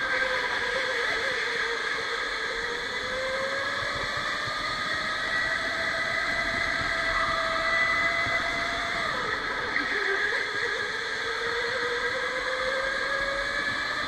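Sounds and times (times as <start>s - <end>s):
electric motor whining: 0.0s - 14.0s.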